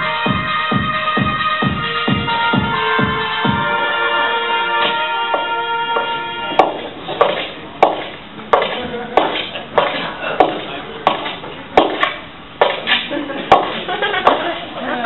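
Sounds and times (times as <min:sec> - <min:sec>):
sharp clanking knocks: 0:04.8 - 0:12.9, 0:13.5 - 0:14.4.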